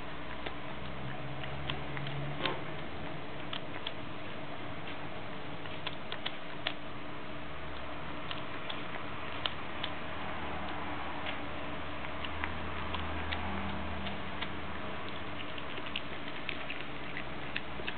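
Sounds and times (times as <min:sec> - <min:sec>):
dog teeth clicking on rawhide: 0:05.7 - 0:06.8, 0:10.6 - 0:17.9.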